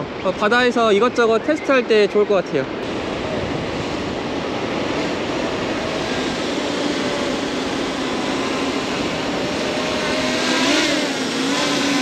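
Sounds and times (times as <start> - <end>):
drone propellers humming: 2.7 - 12.0.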